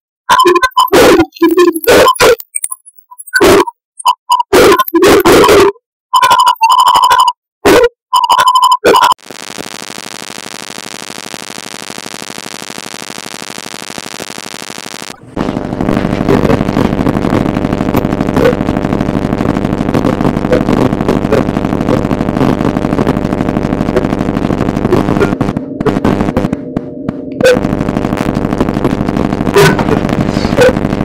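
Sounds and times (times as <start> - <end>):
electronic pulsing buzz: 9.2 - 31.0.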